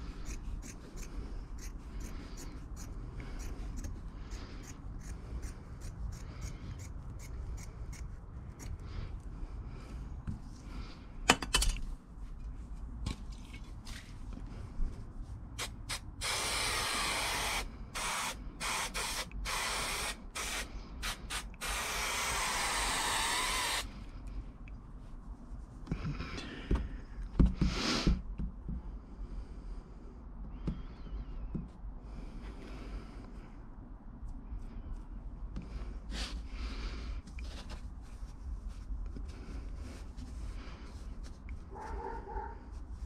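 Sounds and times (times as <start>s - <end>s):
handling knocks and rustles: 11.3s - 14.5s
aerosol can spraying: 15.6s - 23.9s.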